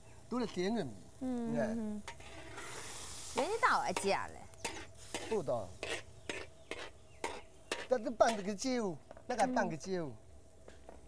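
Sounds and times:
food simmering and sizzling in wok: 2.0s - 11.0s
utensils clacking against wok: 3.4s - 8.5s.

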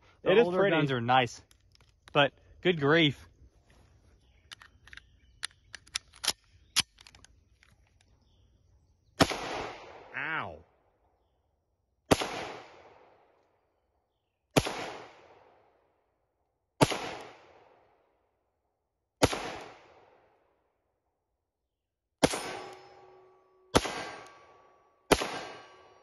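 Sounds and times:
pistol shots: 9.2s - 10.1s, 12.1s - 13.1s, 14.6s - 15.6s, 16.8s - 17.7s, 19.2s - 20.1s, 22.2s - 22.8s, 23.7s - 26.0s
steel target plate ringing: 22.3s - 26.0s.

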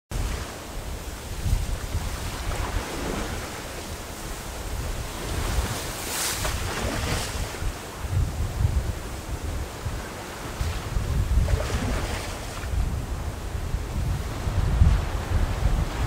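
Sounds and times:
wind buffeting microphone: 0.1s - 16.0s
small waves through slush ice: 5.0s - 7.7s, 11.4s - 12.7s.

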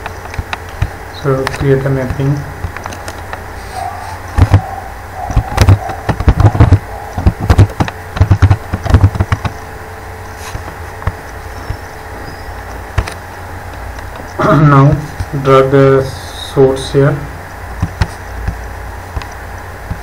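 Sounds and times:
steady low hum: 0.0s - 20.0s
keyboard typing: 4.3s - 9.6s.

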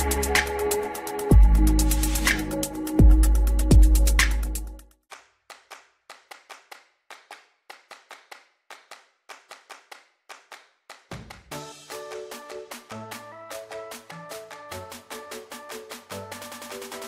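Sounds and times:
music: 0.0s - 5.0s, 11.1s - 17.0s
handclaps: 2.2s - 2.6s, 5.0s - 17.0s.

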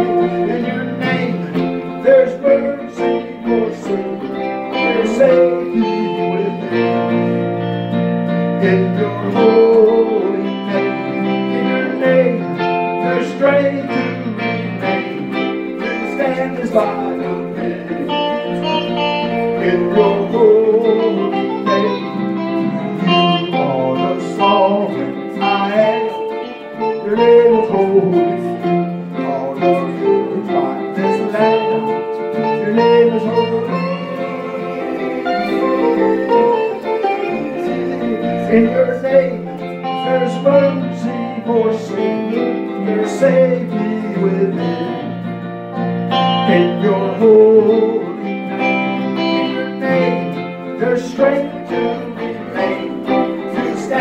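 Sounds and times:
electric guitar melody: 0.0s - 54.0s
sustained held chords: 27.4s - 40.4s.

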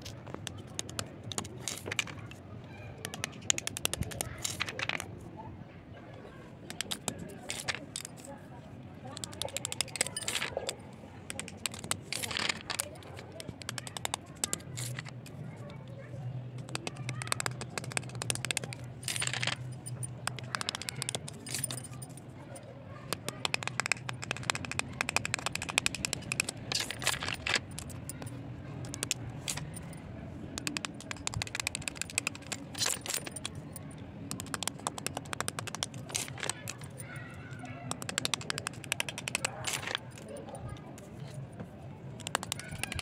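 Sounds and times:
knife scraping pencil crunching: 6.8s - 8.3s, 13.4s - 15.2s, 23.4s - 28.2s, 34.4s - 37.0s.

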